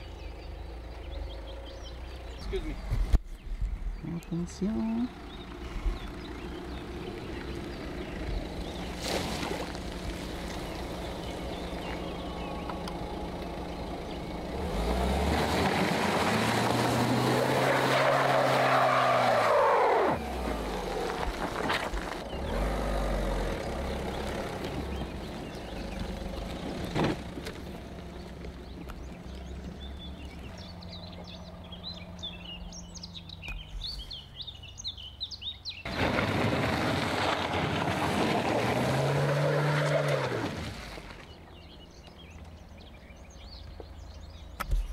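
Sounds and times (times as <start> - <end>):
birds chirping: 0.0 - 36.2, 39.0 - 44.9
car engine revving hard: 13.7 - 27.4, 35.9 - 41.1.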